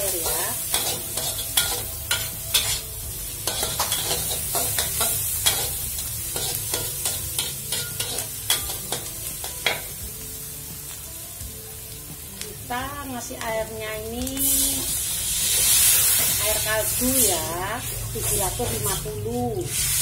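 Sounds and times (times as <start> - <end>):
metal spatula scraping wok: 0.0 - 10.0
garlic and onion sizzling: 0.0 - 20.0.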